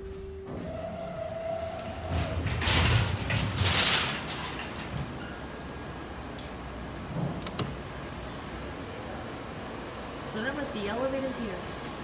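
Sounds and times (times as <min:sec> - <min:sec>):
elevator doors sliding open: 0:00.0 - 0:06.1.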